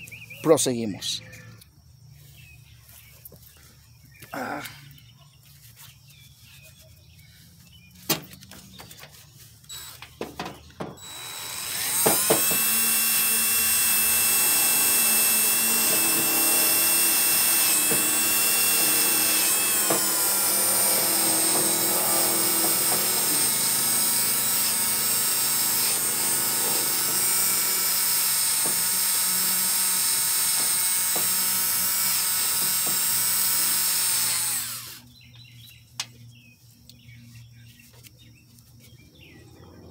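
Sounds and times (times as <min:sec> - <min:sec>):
drill whining with wire brush: 0:09.6 - 0:35.0.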